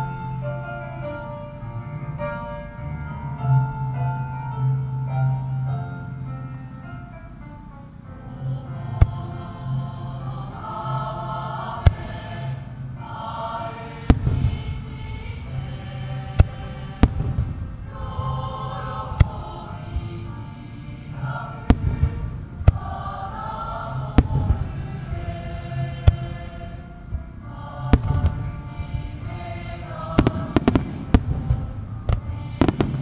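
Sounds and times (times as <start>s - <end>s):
music: 0.0s - 33.0s
fireworks banging: 14.1s - 15.0s, 16.4s - 18.3s, 21.6s - 22.9s, 24.1s - 25.4s, 27.9s - 29.2s, 30.1s - 33.0s.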